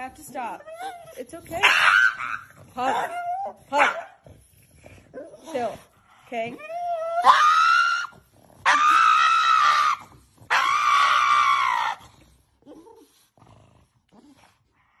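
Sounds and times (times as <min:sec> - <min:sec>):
dog screaming: 0:00.7 - 0:04.1, 0:06.8 - 0:12.0.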